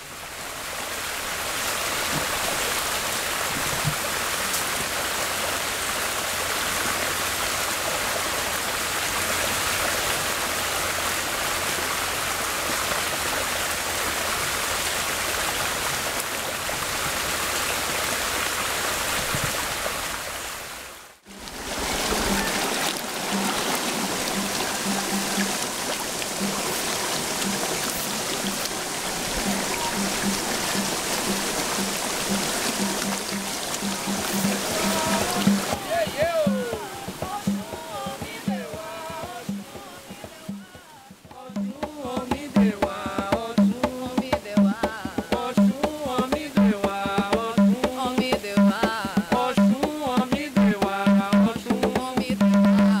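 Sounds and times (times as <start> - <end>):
stream water rushing: 0.0 - 53.0.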